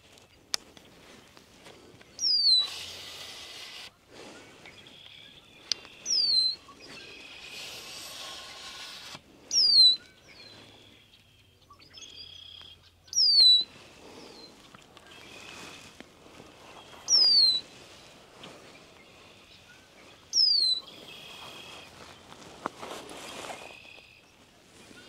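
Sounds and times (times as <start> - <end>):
faint bird chirps: 2.0 - 25.0
songbird whistle and buzzy trill: 2.1 - 15.9, 16.6 - 22.0.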